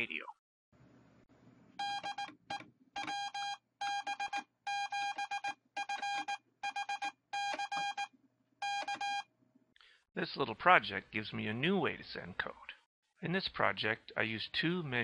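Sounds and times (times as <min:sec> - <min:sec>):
morse code beeping tone: 0:03.0 - 0:09.2.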